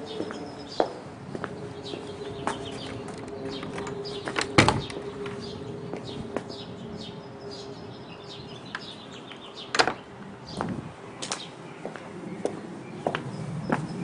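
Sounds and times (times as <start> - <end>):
small birds chirping: 0.0 - 14.0
wooden door opening: 2.8 - 5.0.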